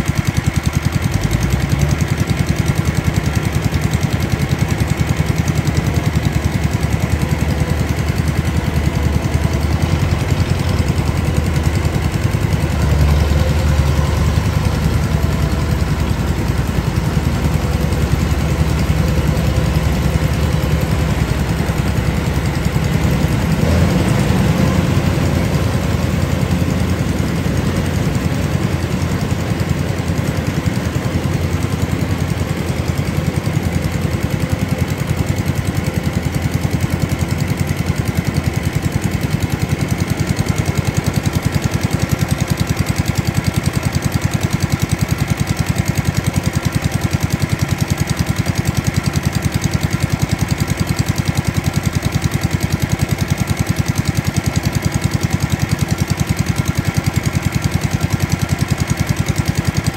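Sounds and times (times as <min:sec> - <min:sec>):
combine harvester diesel engine: 0:00.0 - 0:59.9.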